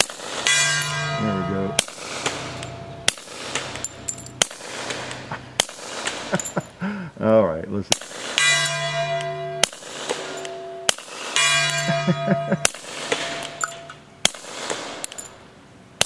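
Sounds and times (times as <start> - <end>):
steel target ringing: 0.0 - 5.3, 7.9 - 15.3
suppressed pistol shots: 1.8 - 6.4, 7.9 - 8.4, 9.6 - 11.4, 12.6 - 15.4.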